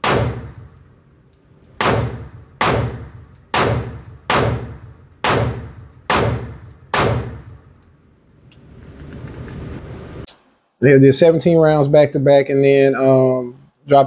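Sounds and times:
pistol shots echoing indoors: 0:00.0 - 0:07.9
quiet steady noise: 0:00.0 - 0:14.0.

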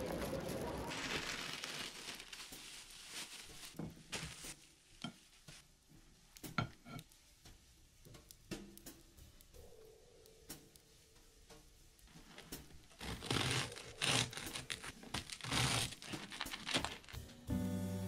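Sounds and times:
small objects clicking and tapping: 0:06.3 - 0:13.1.

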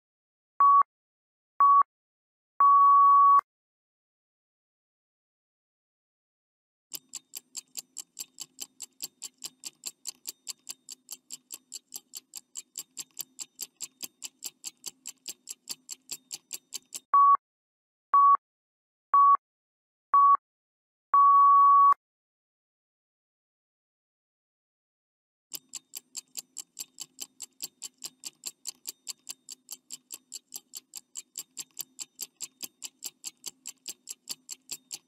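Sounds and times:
short loud beeps: 0:02.6 - 0:03.4, 0:21.2 - 0:22.0
clock ticking quickly: 0:06.9 - 0:17.1, 0:25.5 - 0:35.0.

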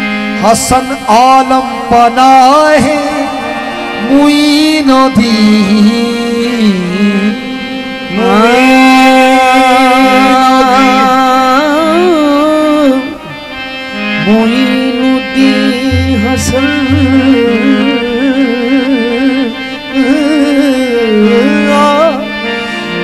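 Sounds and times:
harmonium: 0:00.0 - 0:23.0
man singing long note: 0:00.4 - 0:13.2, 0:14.2 - 0:23.0
voices singing: 0:14.2 - 0:23.0.

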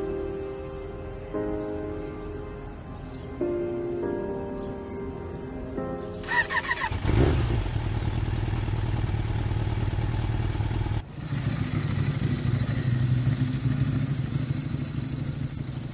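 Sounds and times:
motorcycle engine running: 0:06.2 - 0:15.9.

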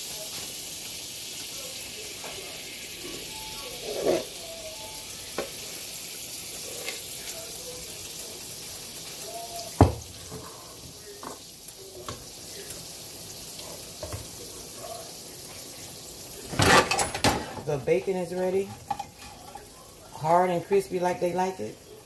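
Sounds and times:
batter sizzling in a pan: 0:00.0 - 0:22.0.

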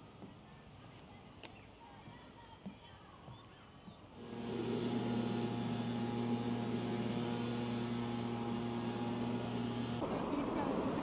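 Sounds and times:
steady pitched hum: 0:04.2 - 0:10.0.

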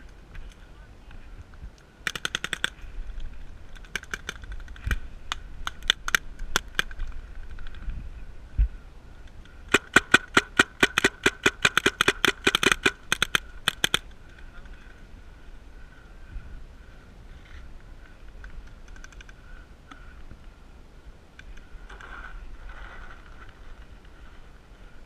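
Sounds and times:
paintball markers firing: 0:02.1 - 0:02.8, 0:03.7 - 0:05.0, 0:09.7 - 0:14.1.

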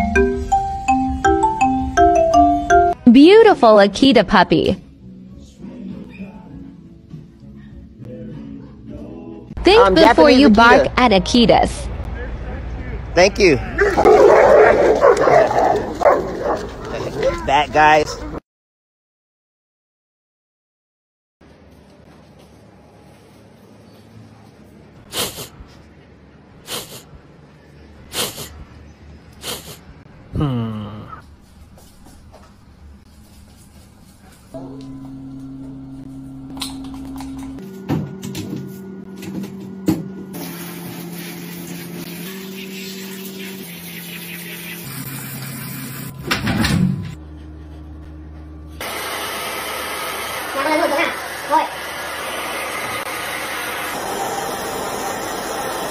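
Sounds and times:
mechanical hum: 0:21.4 - 0:55.9
dog sneezing: 0:25.1 - 0:25.6, 0:26.7 - 0:27.1, 0:28.1 - 0:28.6, 0:29.4 - 0:29.9
hair dryer running: 0:48.8 - 0:55.9.

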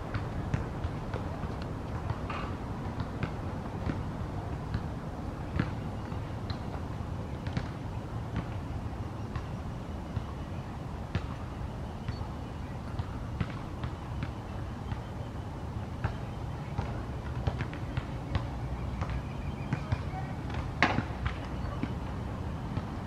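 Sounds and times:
osprey high-pitched chirps: 0:17.8 - 0:20.4.

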